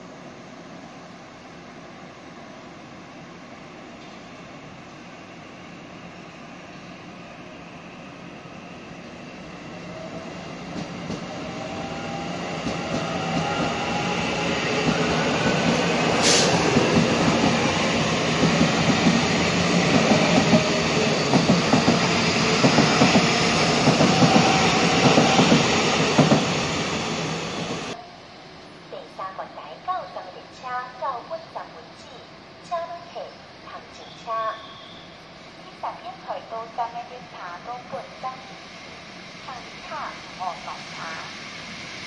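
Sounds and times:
electric train pulling out: 5.0 - 28.0, 38.2 - 42.0.

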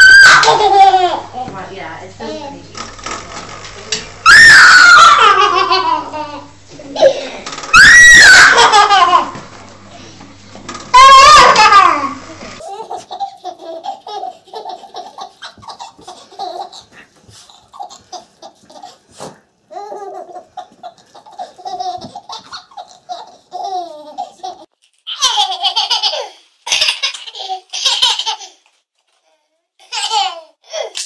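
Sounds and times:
baby laughing: 0.0 - 1.3, 8.1 - 9.4, 11.0 - 28.7, 29.8 - 31.0.

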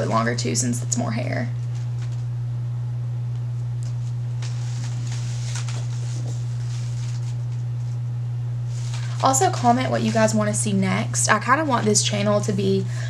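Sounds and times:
low electrical hum: 0.0 - 13.0
soft rustles of hair: 3.9 - 8.1.

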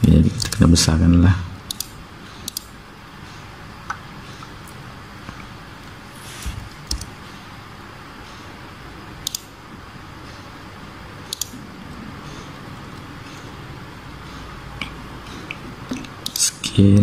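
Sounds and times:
computer mouse and keyboard clicks: 1.7 - 2.7, 6.5 - 7.1, 9.2 - 9.5, 11.3 - 11.6, 14.8 - 16.5.

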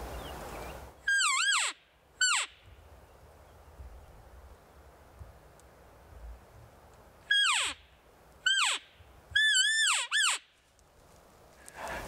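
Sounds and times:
elk mews squealing: 7.3 - 7.8, 8.4 - 8.8, 9.4 - 10.4.

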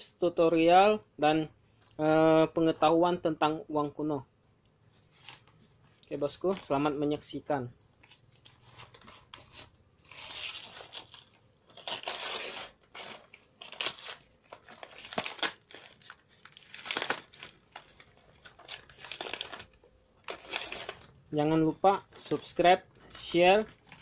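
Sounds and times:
paper tearing and crinkling: 8.0 - 21.2.

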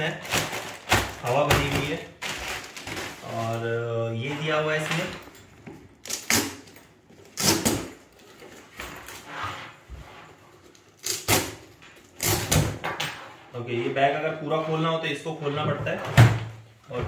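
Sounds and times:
rustling and scraping of packing: 0.0 - 11.0.

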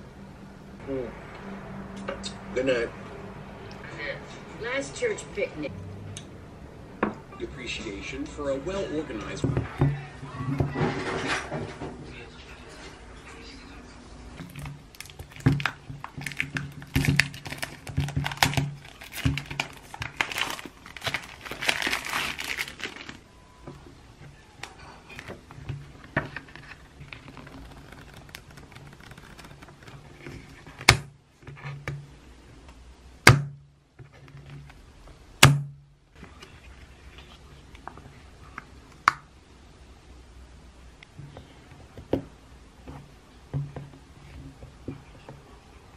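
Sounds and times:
paper rustling and crinkling: 14.4 - 23.3, 24.2 - 30.9.

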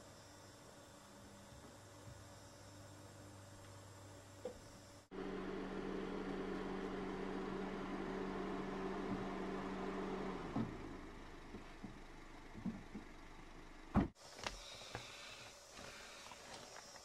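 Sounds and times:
car engine humming: 5.1 - 14.2.

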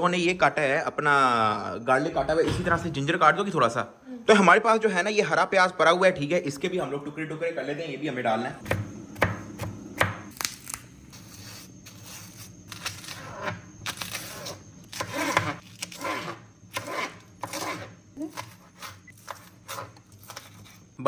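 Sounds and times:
spring onions tearing: 10.3 - 16.0, 18.2 - 21.0.

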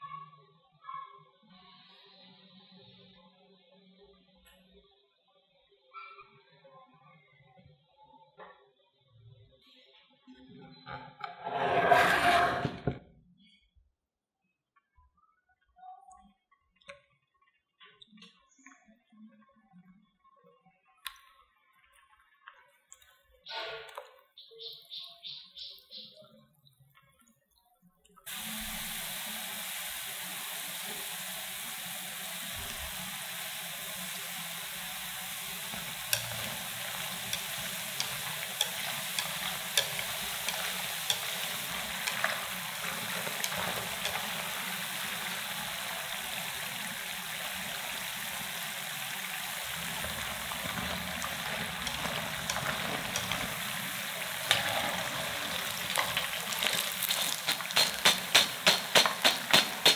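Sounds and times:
oil sizzling: 28.3 - 59.9
pops and crackles in oil: 55.6 - 59.9.

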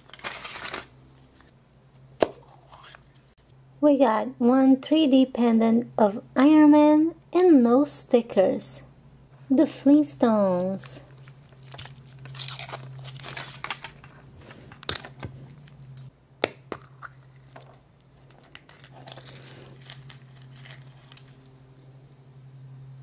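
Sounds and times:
foil wrapper crinkling and tearing: 0.0 - 0.9, 11.1 - 15.0, 18.2 - 21.5.

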